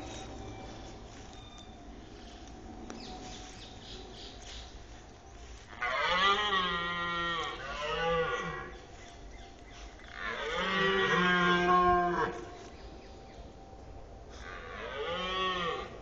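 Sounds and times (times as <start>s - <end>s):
red deer stag roaring: 10.1s - 12.6s, 14.3s - 16.0s.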